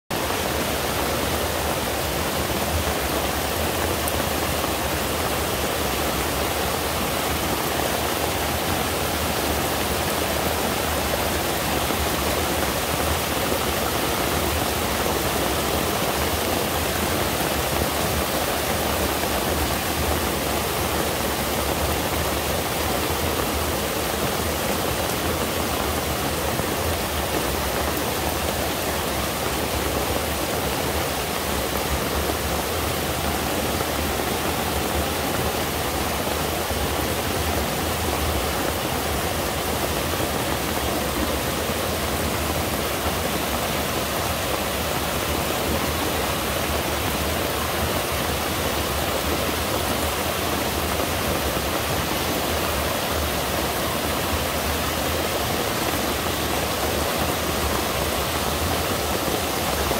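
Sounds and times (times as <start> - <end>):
stream rushing over boulders: 0.0 - 59.9.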